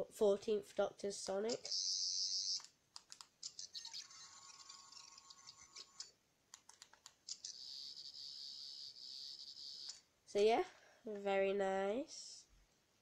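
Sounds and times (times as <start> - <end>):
toy high-pitched electronic effect: 1.5 - 2.7, 7.3 - 10.0.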